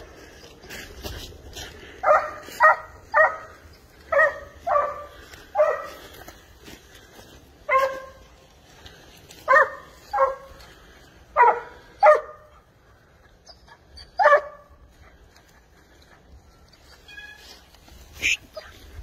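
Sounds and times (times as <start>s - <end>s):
hound barking: 2.0s - 6.4s, 7.6s - 8.4s, 9.4s - 12.9s, 13.5s - 15.2s.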